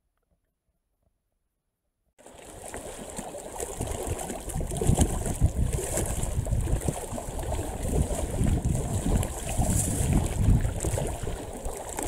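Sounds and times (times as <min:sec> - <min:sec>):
waves lapping on rocky shore: 0:02.2 - 0:12.0
wind buffeting microphone: 0:03.8 - 0:11.7.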